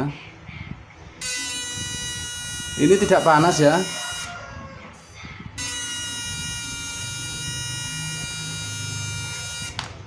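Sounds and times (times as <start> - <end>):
inverter high-pitched buzzing whine: 1.2 - 4.5, 5.6 - 10.0.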